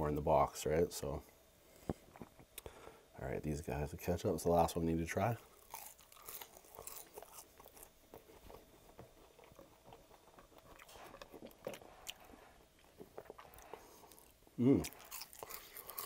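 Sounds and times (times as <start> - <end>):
chewing fries: 5.0 - 16.0.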